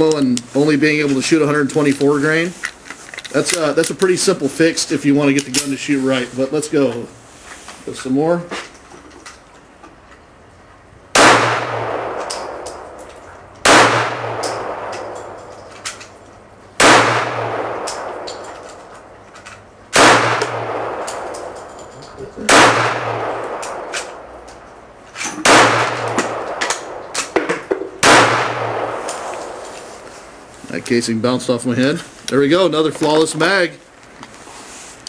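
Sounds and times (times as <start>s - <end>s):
pistol shots echoing: 11.1s - 13.0s, 13.6s - 15.5s, 16.8s - 18.5s, 19.9s - 21.6s, 22.4s - 24.2s, 25.4s - 27.4s, 28.0s - 29.8s.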